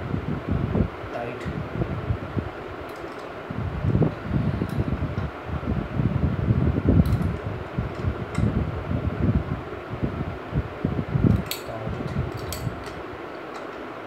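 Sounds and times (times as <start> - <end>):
spanner clinking on metal hub: 11.4 - 13.0.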